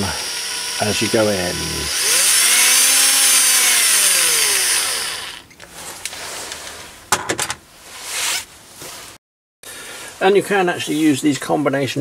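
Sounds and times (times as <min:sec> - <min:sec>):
cordless drill motor running: 0:00.0 - 0:05.5.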